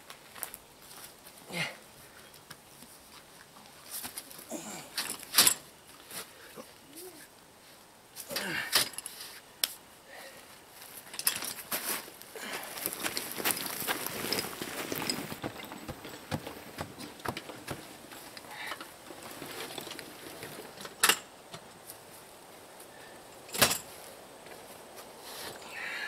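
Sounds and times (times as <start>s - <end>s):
footsteps: 10.8s - 19.8s
garden wagon rattling over dirt: 11.0s - 21.7s.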